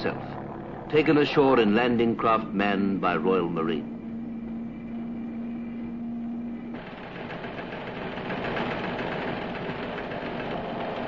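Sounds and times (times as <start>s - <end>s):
engine running with knocking rattle: 0.0s - 3.2s, 3.9s - 11.0s
steady hum: 0.0s - 11.0s.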